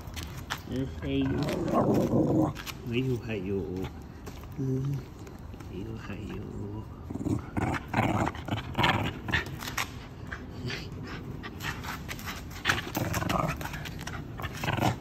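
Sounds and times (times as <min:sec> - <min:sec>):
dog growling: 0:01.0 - 0:02.8, 0:06.5 - 0:09.6, 0:12.6 - 0:15.0.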